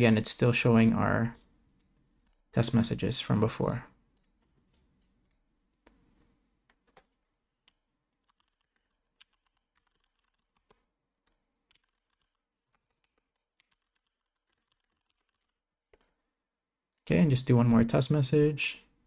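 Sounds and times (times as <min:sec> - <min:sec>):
keyboard typing: 0:06.6 - 0:16.2.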